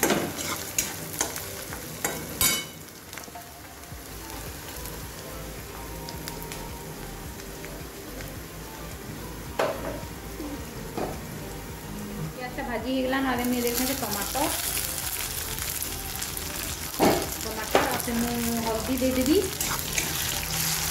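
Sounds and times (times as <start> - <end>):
metal spatula scraping pan: 0.0 - 1.0
onions sizzling in oil: 0.0 - 20.9.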